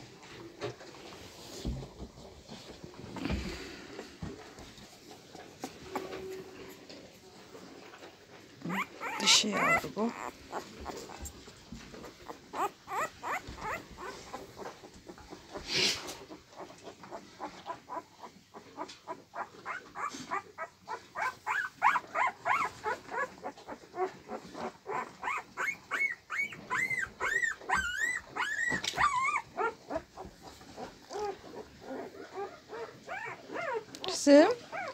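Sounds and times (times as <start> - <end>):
puppies squeaking and whimpering: 8.6 - 34.9.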